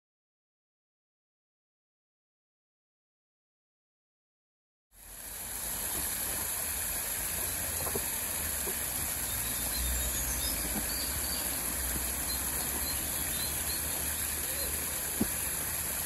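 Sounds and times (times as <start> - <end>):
waterfall splashing into pool: 5.0 - 16.0
faint bird chirps: 9.2 - 15.7.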